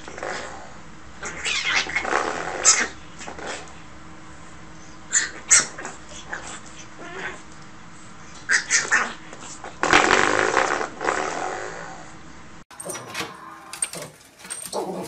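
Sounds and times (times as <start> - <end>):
puppy yipping and growling: 1.2 - 3.7, 5.1 - 7.4, 8.5 - 9.3, 13.9 - 15.0.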